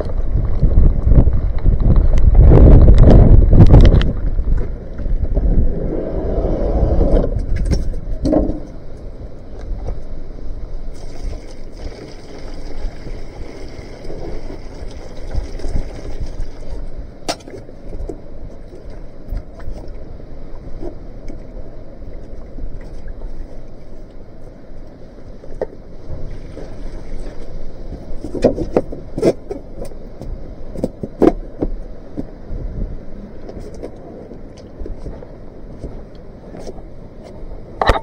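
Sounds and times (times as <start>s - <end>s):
wind buffeting microphone: 0.0s - 17.2s, 26.0s - 38.0s.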